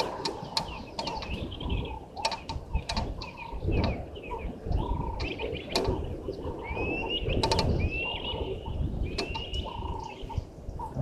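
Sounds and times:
sharp clicks: 0.0 - 1.5, 2.2 - 4.0, 5.2 - 6.1, 7.4 - 7.8, 9.1 - 9.7
birds chirping: 0.0 - 11.0
low cooing bird call: 0.0 - 11.0.

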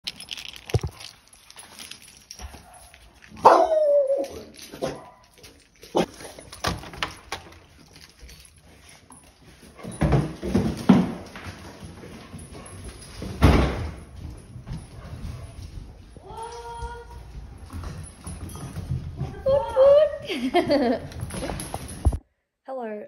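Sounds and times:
dog yelping: 3.4 - 5.2.

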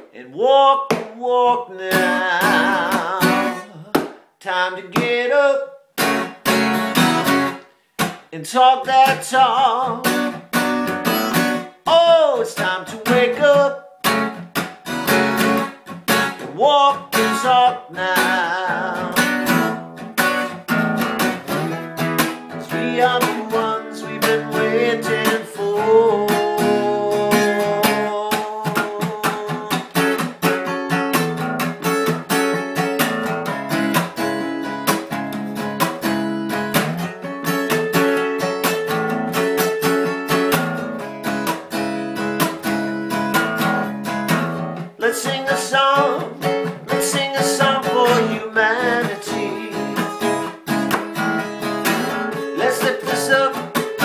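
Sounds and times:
acoustic guitar strumming: 0.0 - 4.3, 4.9 - 54.0
man singing: 0.0 - 5.8, 8.3 - 10.4, 11.8 - 14.1, 16.2 - 19.8, 21.5 - 30.4, 44.8 - 54.0.

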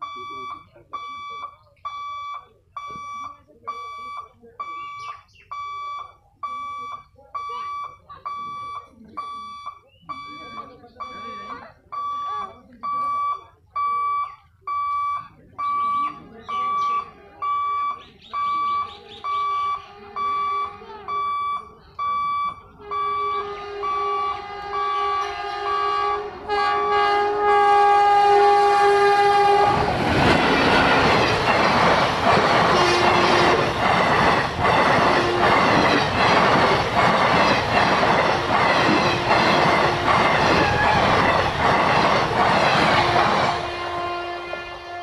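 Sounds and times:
pulsing beep: 0.0 - 25.2
train coaches rumbling past: 15.6 - 45.0
locomotive horn blasts: 19.9 - 21.1, 22.7 - 31.4, 32.6 - 33.8, 35.2 - 35.8, 38.4 - 41.3, 42.8 - 45.0
wheels clattering over rail joints: 28.9 - 45.0.

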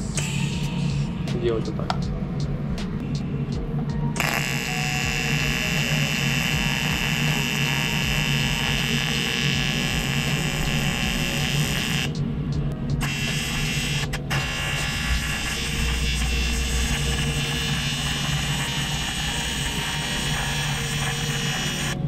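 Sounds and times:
welding arc buzzing: 4.2 - 12.2, 13.0 - 22.0.

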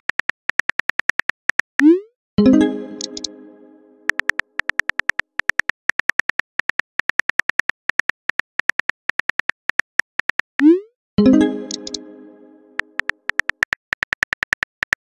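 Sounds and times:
short musical chime: 2.4 - 4.1, 11.2 - 12.8
phone keyboard clicks: 4.1 - 10.5, 12.9 - 15.0.

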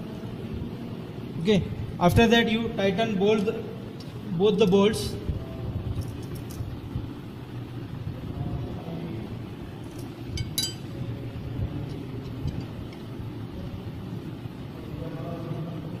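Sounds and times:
light metal clinks: 9.9 - 11.0, 11.9 - 13.1.

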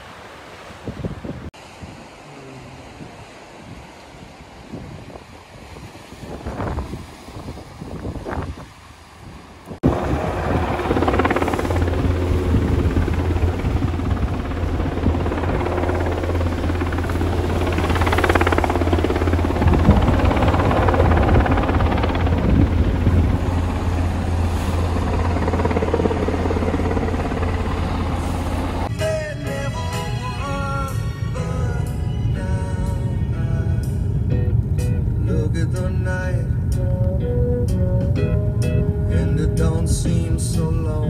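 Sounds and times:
turbine engines humming: 8.2 - 41.0
helicopter rotors thudding: 9.8 - 28.9.

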